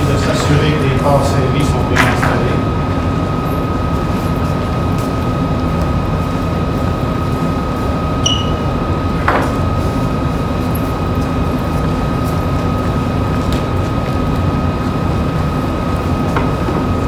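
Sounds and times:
constant high hum: 0.0s - 17.0s
brief high squeak: 8.2s - 8.6s.

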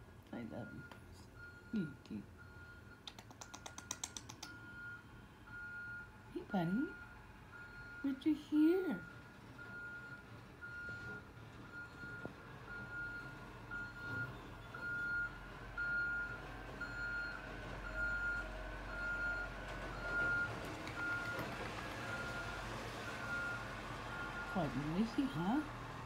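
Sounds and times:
truck engine rumble: 0.0s - 26.0s.

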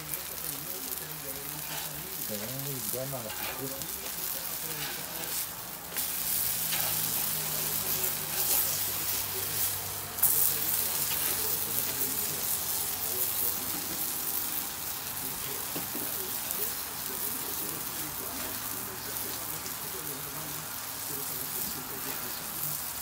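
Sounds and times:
food sizzling on a griddle: 0.0s - 23.0s
metal spatula scraping and tapping: 3.2s - 3.7s.

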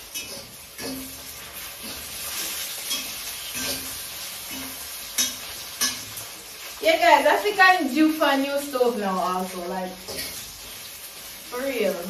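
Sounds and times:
utensil scraping metal pan: 0.0s - 6.3s, 10.1s - 10.6s
fries sizzling in hot oil: 0.0s - 12.0s.

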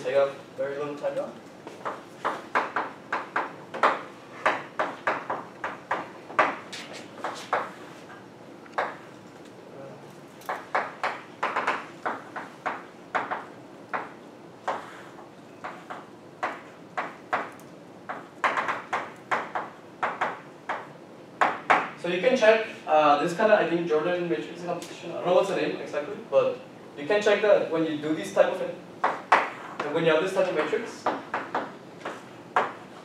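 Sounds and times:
chalk tapping and scratching on blackboard: 1.7s - 8.2s, 10.5s - 21.9s, 29.0s - 29.9s, 30.5s - 33.0s.

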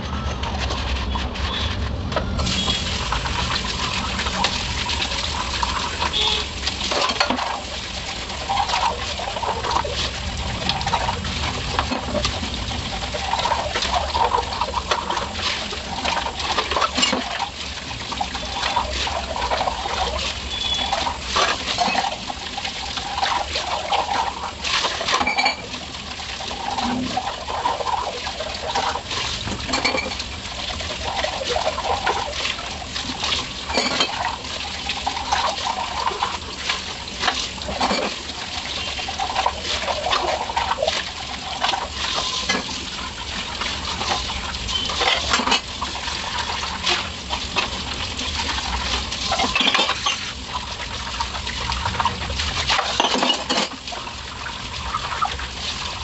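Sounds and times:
tap water running and splashing: 0.0s - 56.0s
steel tumblers clinking: 49.3s - 50.3s.

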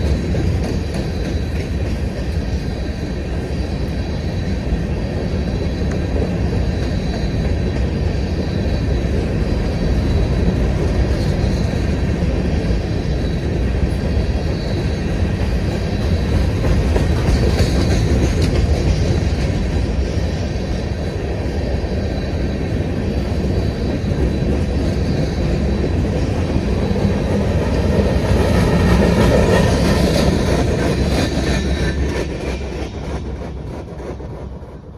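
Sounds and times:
freight train wheels rumbling: 0.0s - 34.9s.

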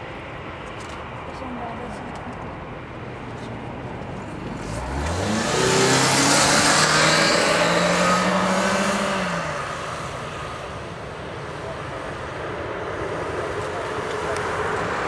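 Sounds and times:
vehicle passing by: 4.2s - 15.0s.

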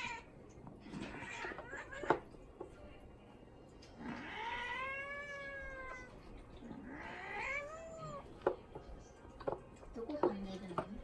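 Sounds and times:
cat meowing: 0.0s - 0.3s, 0.9s - 2.3s, 4.0s - 6.2s, 6.8s - 8.3s
cats play-wrestling: 0.0s - 2.9s.

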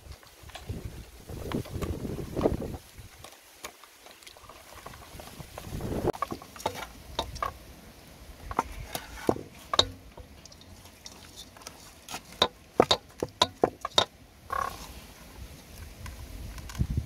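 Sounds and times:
meat tapping against metal pot: 6.2s - 7.5s, 9.3s - 10.7s, 12.3s - 14.1s.

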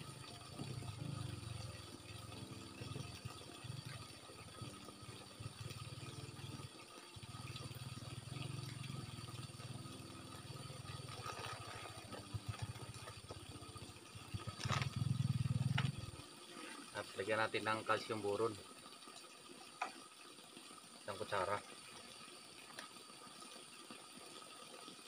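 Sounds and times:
small engine droning: 7.2s - 16.2s
plastic bottles rattling: 11.0s - 13.2s, 14.5s - 15.0s.

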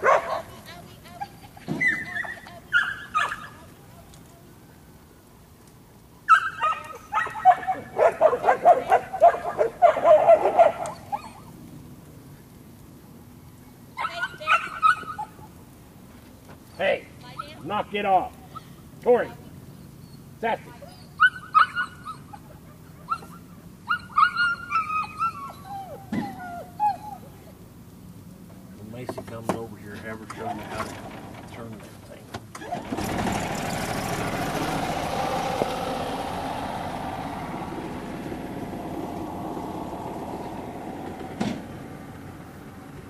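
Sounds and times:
dog barking and yipping: 0.0s - 3.8s, 6.3s - 11.5s, 14.0s - 15.5s, 20.1s - 27.4s.

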